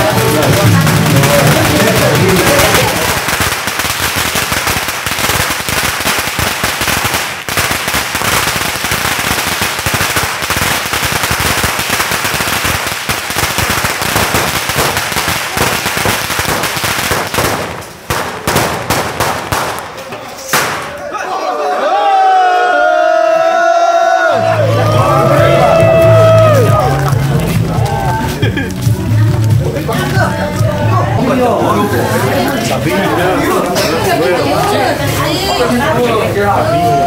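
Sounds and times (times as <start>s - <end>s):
firecrackers crackling and popping: 0.0s - 21.1s, 24.6s - 37.0s.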